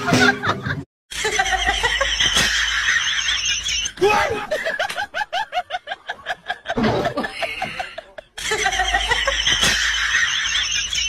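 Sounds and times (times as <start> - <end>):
music: 0.0 - 0.8.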